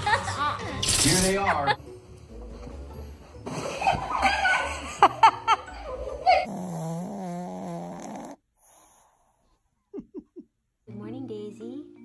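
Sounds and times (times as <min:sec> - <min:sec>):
dog snoring: 0:06.4 - 0:09.5.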